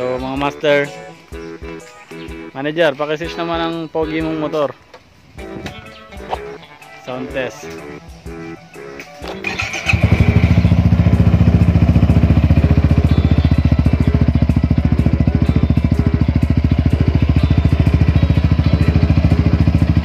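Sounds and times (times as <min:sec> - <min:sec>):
scooter engine idling: 0:09.3 - 0:20.0.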